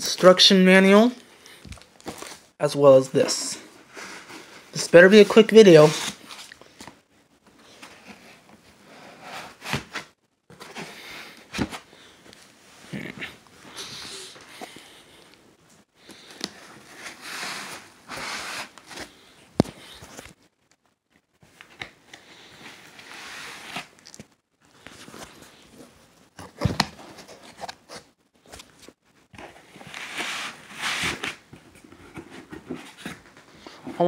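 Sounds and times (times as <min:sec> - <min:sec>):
cardboard and foam rustling: 0:01.6 - 0:02.5, 0:16.2 - 0:20.4, 0:22.4 - 0:34.0.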